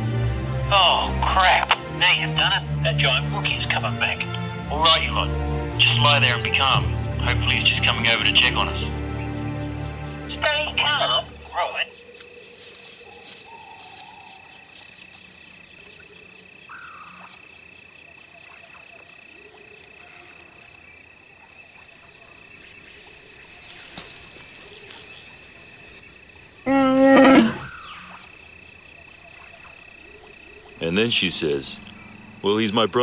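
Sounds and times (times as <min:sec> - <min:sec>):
insects chirring: 0:00.0 - 0:33.0
creature roar: 0:26.7 - 0:27.7.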